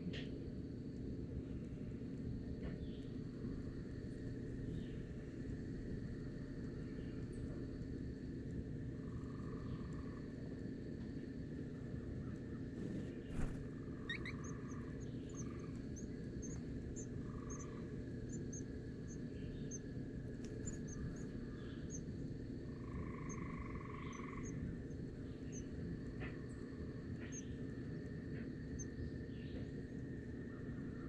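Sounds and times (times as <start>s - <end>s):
constant high hum: 0.0s - 31.0s
steady low rumble: 0.0s - 31.0s
small birds chirping: 2.6s - 5.4s, 11.7s - 31.0s.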